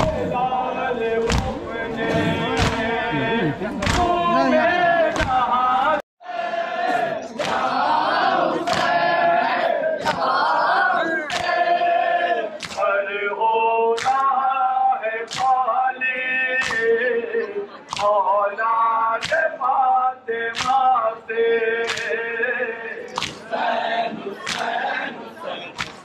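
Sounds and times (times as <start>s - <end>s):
men singing in unison: 0.0s - 25.8s
chest-beating slaps: 1.2s - 3.0s, 3.7s - 4.2s, 5.1s - 5.5s, 7.4s - 7.7s, 12.6s - 13.0s, 16.6s - 16.9s, 17.9s - 18.2s, 19.2s - 19.4s, 20.6s - 20.9s, 21.8s - 22.2s, 23.1s - 23.4s.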